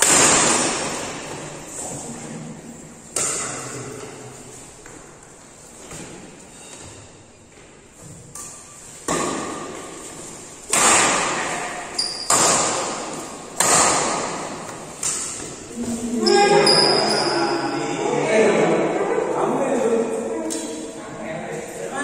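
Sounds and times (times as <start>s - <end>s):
racket hitting shuttlecock: 0.0s - 1.6s, 3.1s - 4.2s, 8.2s - 16.0s
shoe squeaks on court floor: 6.5s - 7.2s, 11.9s - 12.4s, 16.2s - 17.7s.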